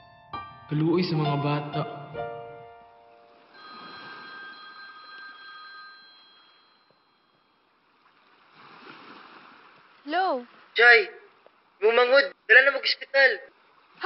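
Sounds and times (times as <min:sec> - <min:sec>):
phone ringtone ringing: 0:03.5 - 0:07.7.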